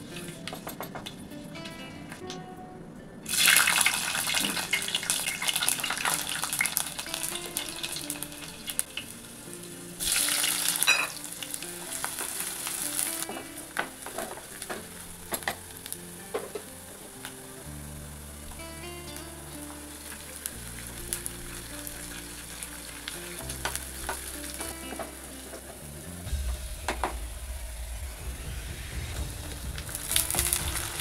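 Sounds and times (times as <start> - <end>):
soft background music: 0.0 - 31.0
food sizzling in hot oil: 3.3 - 18.3, 19.1 - 26.8, 29.3 - 31.0.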